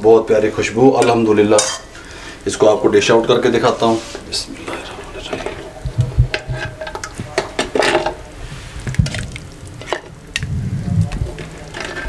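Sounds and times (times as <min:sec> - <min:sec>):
ladle scraping clay pot: 0:03.6 - 0:09.2
liquid splashing: 0:04.2 - 0:11.8.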